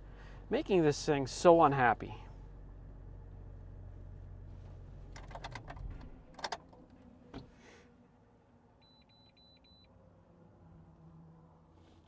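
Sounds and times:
sharp clicks and rattles: 0:05.1 - 0:06.9.

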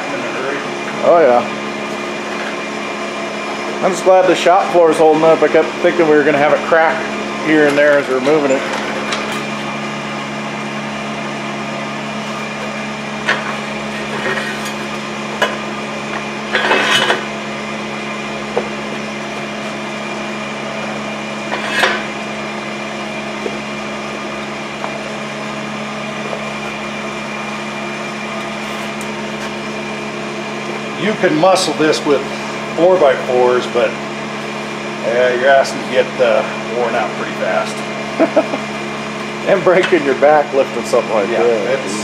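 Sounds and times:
machine hum: 0:00.0 - 0:42.0.

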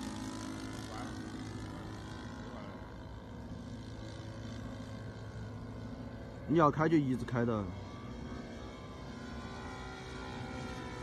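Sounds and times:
model airplane engine drone: 0:00.0 - 0:11.0.

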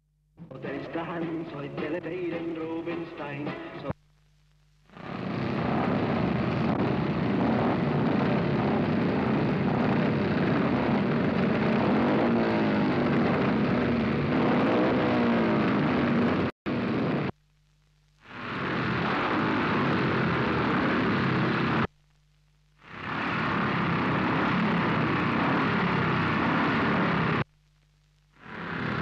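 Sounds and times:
low hum: 0:03.9 - 0:29.0
motorcycle engines revving: 0:05.0 - 0:17.3, 0:18.4 - 0:21.9, 0:22.9 - 0:27.5, 0:28.4 - 0:29.0.

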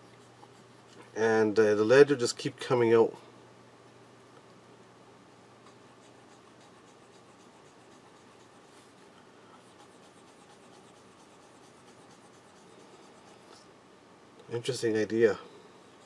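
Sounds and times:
pencil scratching on paper: 0:05.9 - 0:09.0, 0:09.6 - 0:13.5.

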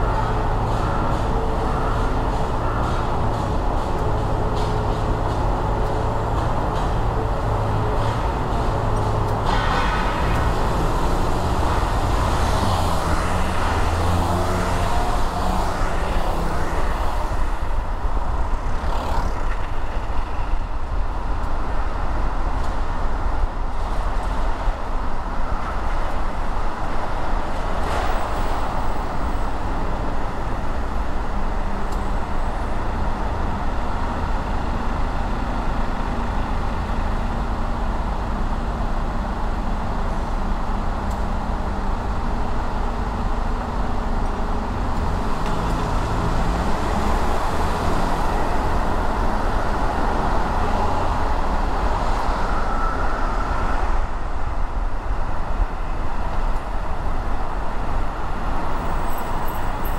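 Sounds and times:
car engine: 0:00.0 - 0:22.0
road noise: 0:00.0 - 0:59.9.

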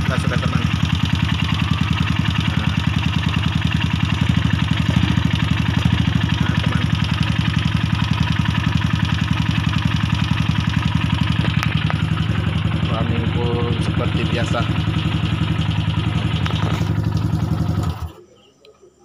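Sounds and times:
motorcycle engine idling: 0:00.0 - 0:18.3.

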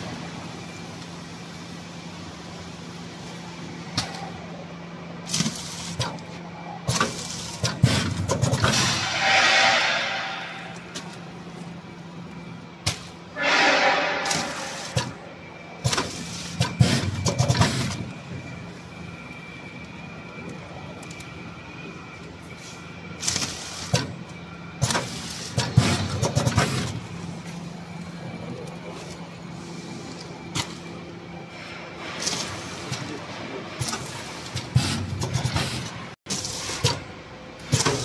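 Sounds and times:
machine hum: 0:00.0 - 0:36.2
machine clacks and thumps: 0:06.9 - 0:09.5, 0:15.8 - 0:18.0, 0:24.8 - 0:27.0.

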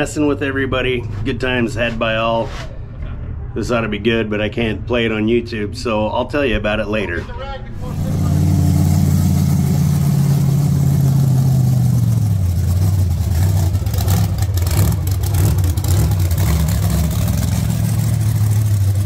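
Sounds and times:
large vehicle engine running: 0:07.7 - 0:19.0.

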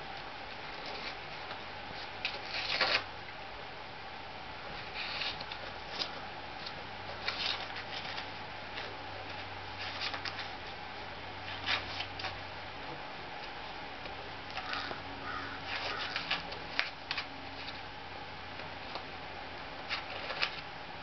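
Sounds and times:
dog tearing paper: 0:02.2 - 0:03.1, 0:04.8 - 0:06.1, 0:07.2 - 0:08.9, 0:09.8 - 0:10.5, 0:11.5 - 0:12.4, 0:14.6 - 0:17.8, 0:19.9 - 0:20.6.

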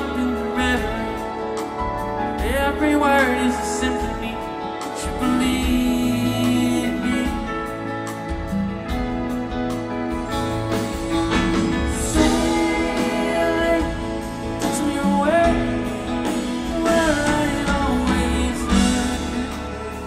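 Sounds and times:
sliding lead melody: 0:00.0 - 0:20.0
soft rock band with orchestra: 0:00.0 - 0:20.0.

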